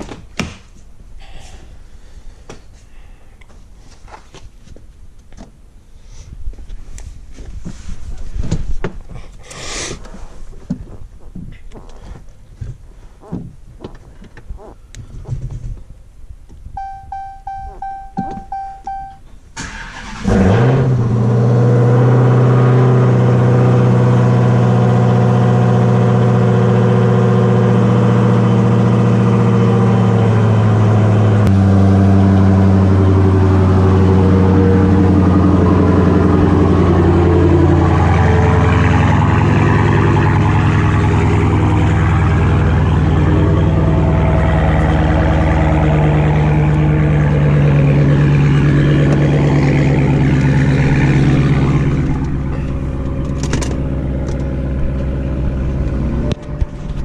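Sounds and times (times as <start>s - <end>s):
car warning chime: 16.8s - 19.3s
car engine starting and idling: 16.8s - 57.0s.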